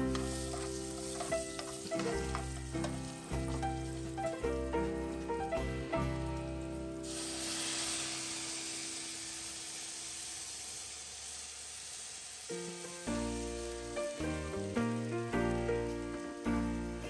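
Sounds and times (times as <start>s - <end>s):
background music: 0.0s - 8.1s, 13.1s - 17.0s
oil hissing sizzle: 0.0s - 17.0s.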